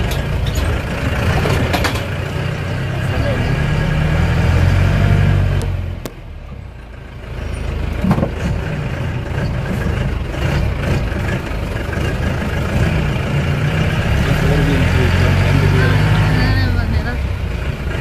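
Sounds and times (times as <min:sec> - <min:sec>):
vehicle engine and road noise: 0:00.0 - 0:18.0.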